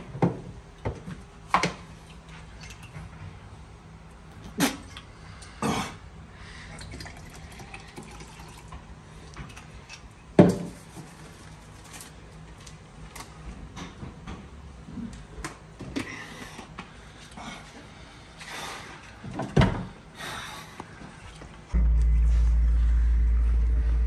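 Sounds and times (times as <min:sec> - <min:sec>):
liquid pouring into a cup: 0:06.7 - 0:08.9.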